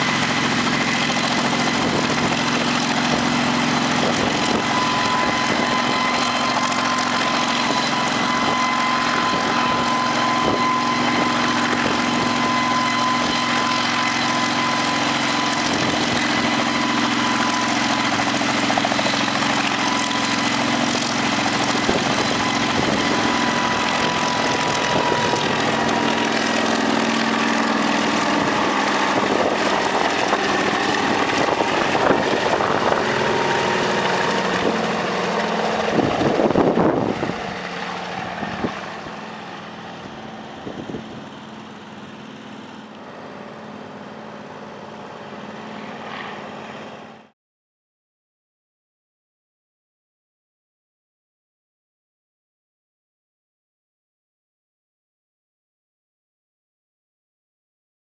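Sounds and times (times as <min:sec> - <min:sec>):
steady whine: 0:00.0 - 0:47.3
helicopter rotor and engine noise: 0:00.0 - 0:47.4.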